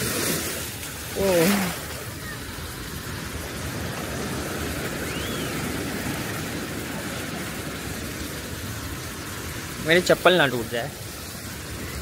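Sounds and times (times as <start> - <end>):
surf washing on beach: 0.0 - 12.0.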